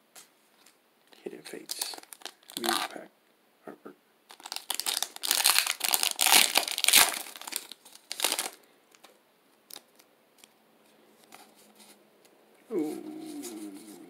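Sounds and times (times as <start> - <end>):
foil wrapper crinkling: 1.5 - 3.0, 4.3 - 9.1, 9.7 - 10.5.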